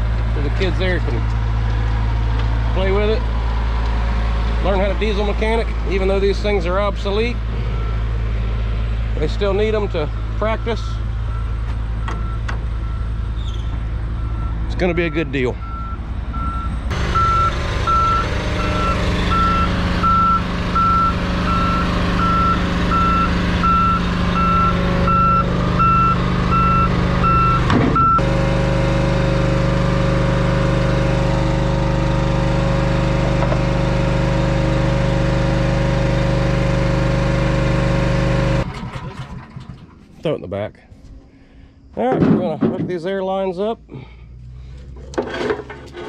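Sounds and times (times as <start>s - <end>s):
diesel engine running: 0.0s - 40.3s, 43.7s - 46.0s
truck reverse alarm beeping: 7.6s - 8.8s, 9.6s - 30.8s.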